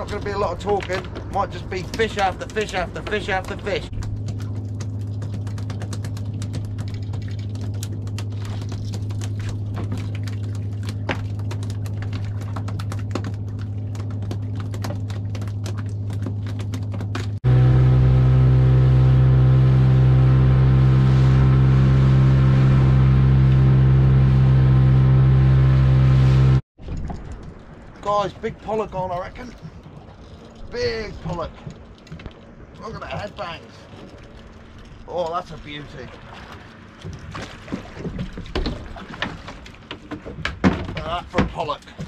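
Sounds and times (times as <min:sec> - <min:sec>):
boat engine running: 0:00.0 - 0:26.6, 0:27.2 - 0:42.0.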